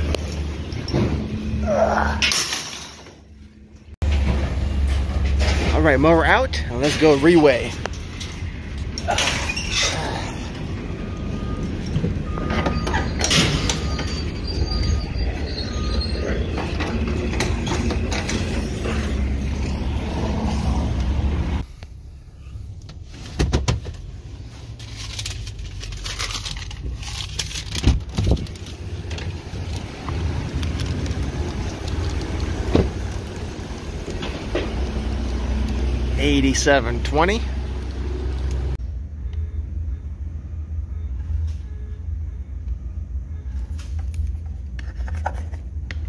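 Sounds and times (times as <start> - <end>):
truck engine humming: 3.1 - 23.0, 28.4 - 44.8
metal gate clanking: 12.5 - 18.8.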